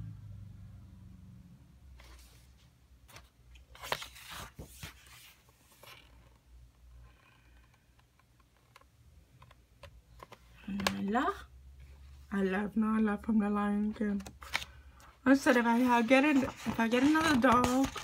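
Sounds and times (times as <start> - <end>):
book pages turning: 2.0 - 6.8, 7.4 - 11.2, 13.9 - 18.0.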